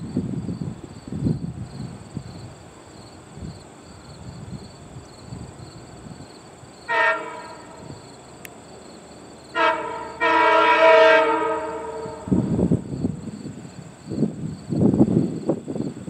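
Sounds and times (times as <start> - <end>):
train horn chord blasts: 6.9 - 7.9, 9.5 - 12.6.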